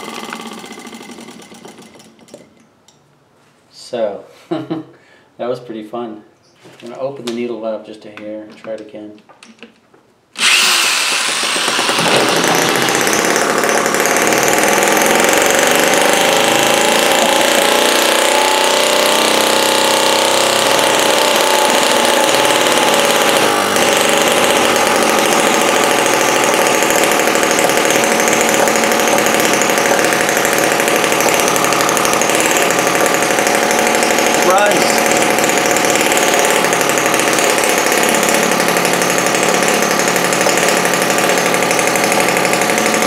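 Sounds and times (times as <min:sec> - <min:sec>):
model engine running at high speed: 0:10.4 - 0:43.0.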